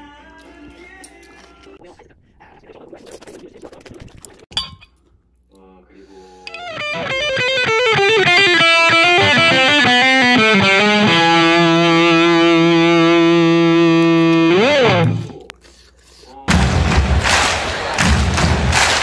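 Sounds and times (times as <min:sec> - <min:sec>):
distorted electric guitar: 0:06.5 - 0:15.4.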